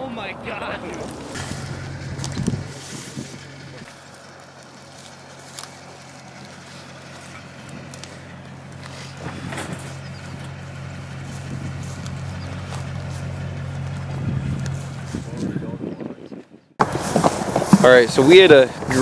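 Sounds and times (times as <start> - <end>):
truck engine idling: 0.0 - 15.7.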